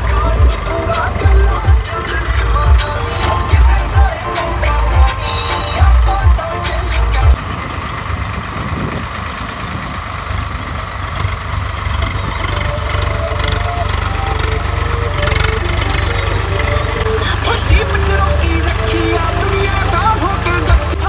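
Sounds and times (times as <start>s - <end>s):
heavy music beat: 0.0s - 7.4s, 12.7s - 21.0s
tractor diesel engine running: 0.0s - 21.0s.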